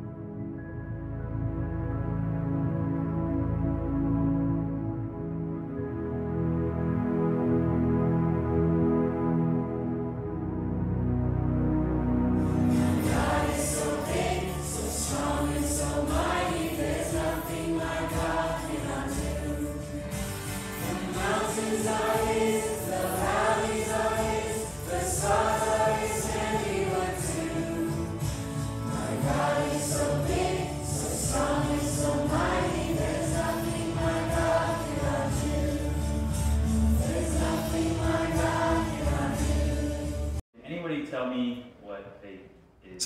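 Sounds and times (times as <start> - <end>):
group singing worship song: 12.5 - 40.4.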